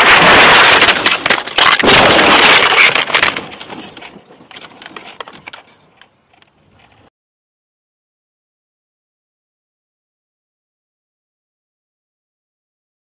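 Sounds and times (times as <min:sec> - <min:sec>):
vehicle crash impacts: 0:00.0 - 0:03.9
debris clinks and rattles: 0:00.0 - 0:05.8.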